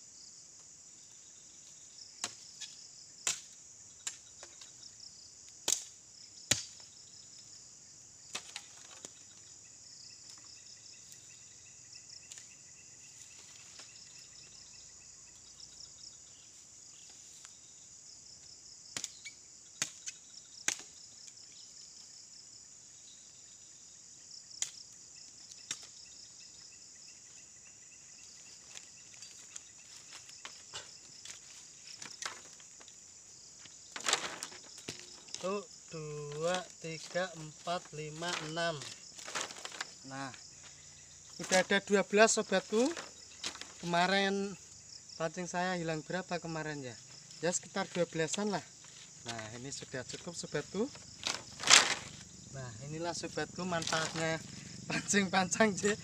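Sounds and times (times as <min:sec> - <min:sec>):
insects chirring: 0:00.0 - 0:56.0
machete chopping bamboo: 0:03.2 - 0:04.2, 0:05.6 - 0:06.8, 0:19.8 - 0:20.9.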